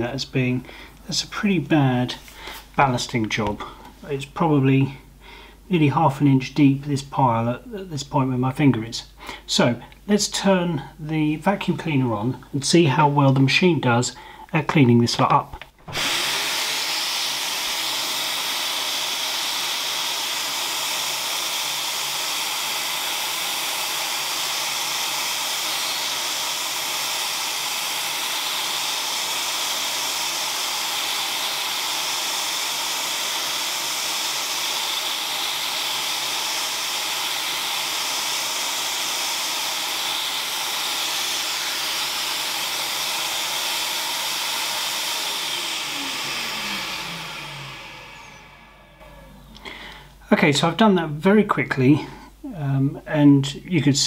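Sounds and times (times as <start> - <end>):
vacuum cleaner running: 15.8 - 50.2
vacuum motor winding down: 15.8 - 50.2.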